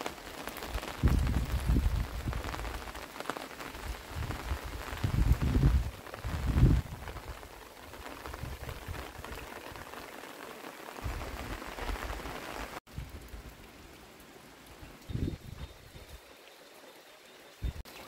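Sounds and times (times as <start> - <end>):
steady rain falling: 0.0 - 18.0
wind rumble on microphone: 0.8 - 2.8, 3.8 - 7.5, 8.1 - 9.4, 11.0 - 12.2, 15.1 - 16.2, 17.6 - 17.8.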